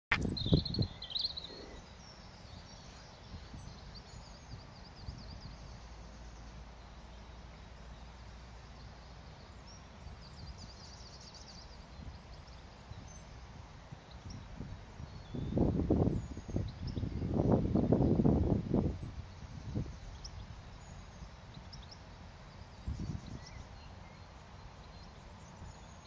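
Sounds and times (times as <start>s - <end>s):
robin singing: 0.1s - 17.4s, 19.0s - 26.0s.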